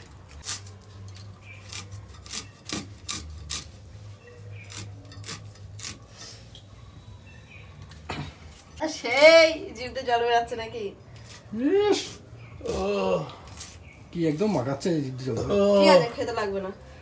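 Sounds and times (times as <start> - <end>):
onion being cut on a blade: 0.0 - 6.4, 11.1 - 13.9.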